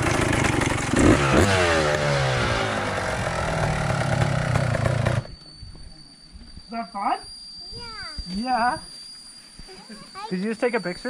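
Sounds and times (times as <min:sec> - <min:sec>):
dirt bike engine revving: 0:00.0 - 0:05.4.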